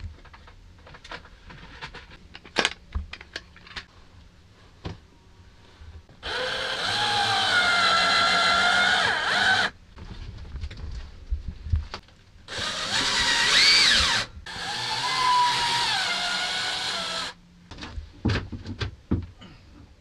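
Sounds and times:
power drill driving a screw: 6.2s - 9.7s, 12.5s - 17.4s.

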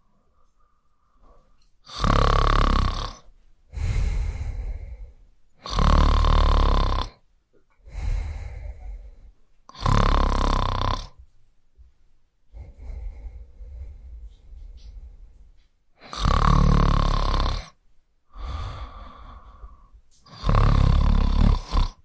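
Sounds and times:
quiet breathing: 0.0s - 22.0s
person snoring: 1.8s - 7.2s, 7.8s - 11.2s, 12.5s - 15.2s, 16.0s - 22.0s.

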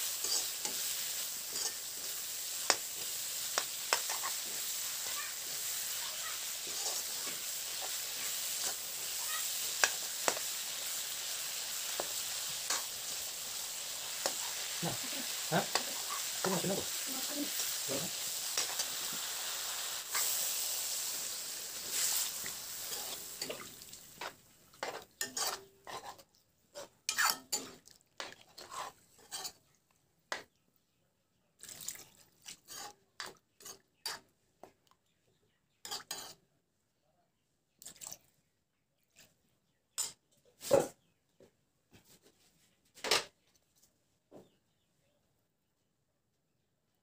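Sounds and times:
pork sizzling in metal pot: 0.0s - 29.6s, 32.6s - 34.3s, 35.9s - 36.4s
metal ladle scraping pot: 24.2s - 26.2s, 26.8s - 27.7s, 28.6s - 29.6s.

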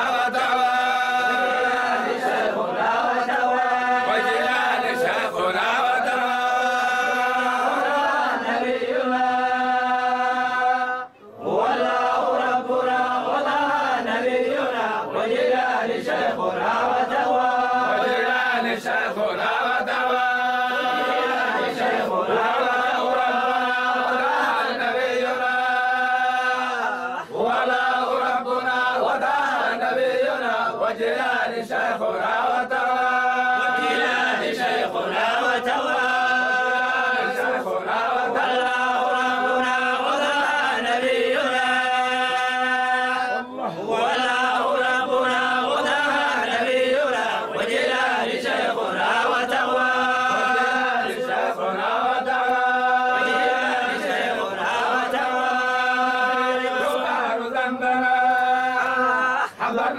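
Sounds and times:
men chanting in unison: 0.0s - 59.9s.

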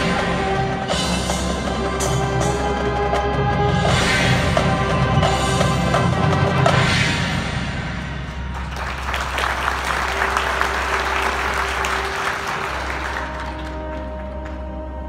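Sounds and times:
marching band playing: 0.0s - 15.0s
audience applause: 8.3s - 14.8s.

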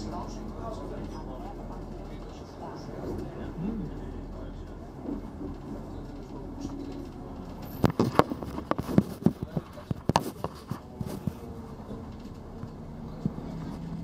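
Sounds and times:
vehicle rumble from inside cabin: 0.0s - 14.0s
sharp knocks and rattles: 6.8s - 10.6s.

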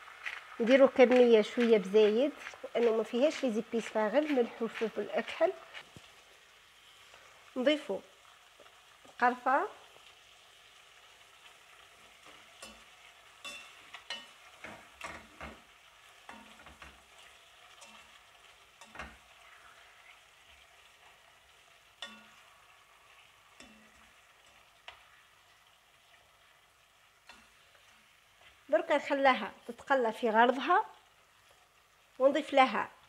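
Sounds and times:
chicken sizzling in oil: 0.0s - 33.0s
spoon clicking and scraping pot: 12.2s - 19.2s, 22.0s - 22.5s, 23.5s - 25.1s.

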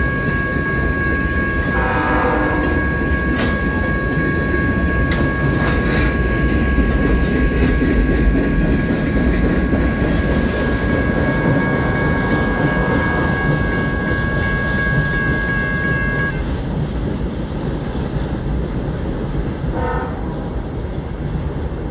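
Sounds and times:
distant locomotive air horn: 0.0s - 8.1s, 8.7s - 16.4s, 19.7s - 20.4s.

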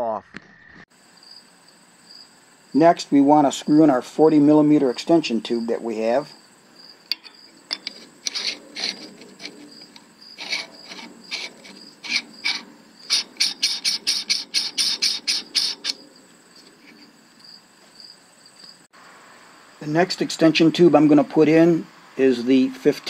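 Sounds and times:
metal threads scraping: 7.0s - 17.2s.

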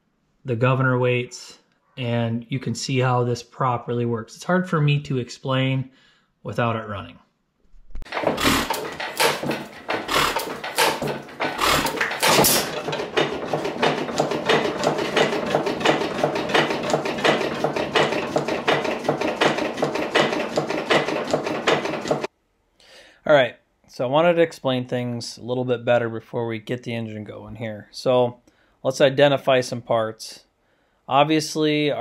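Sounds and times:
flywheel engine clattering: 8.0s - 22.3s.

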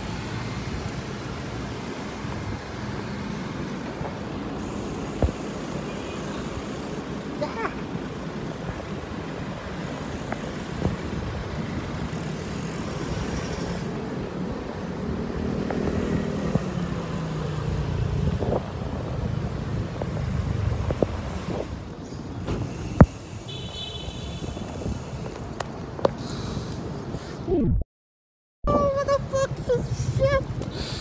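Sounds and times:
city traffic noise: 0.0s - 27.7s, 28.7s - 31.0s
wind rush on microphone: 18.1s - 21.9s.

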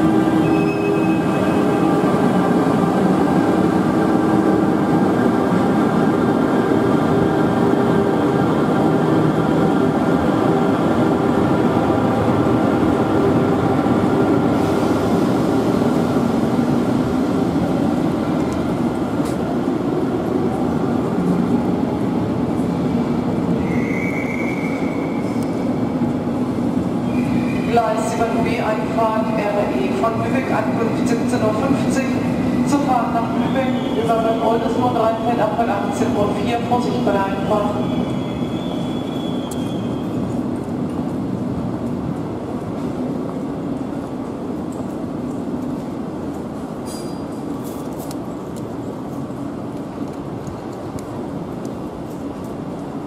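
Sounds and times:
train rumbling: 0.0s - 53.0s
high squeal: 23.6s - 25.4s, 37.7s - 40.2s.

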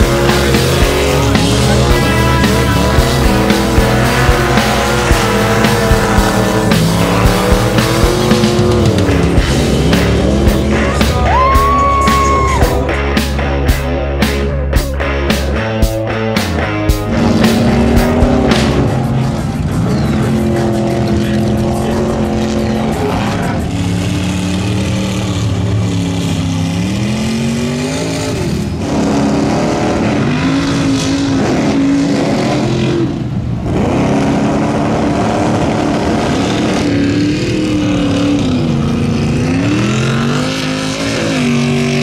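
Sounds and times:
truck engines revving: 0.0s - 42.0s.

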